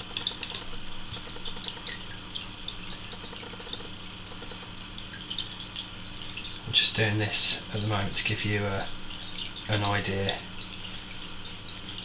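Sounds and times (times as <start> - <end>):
faint small ticks: 0.0 - 2.2, 2.8 - 5.9
aquarium low hum: 0.0 - 12.0
water trickling and dripping: 0.0 - 12.0.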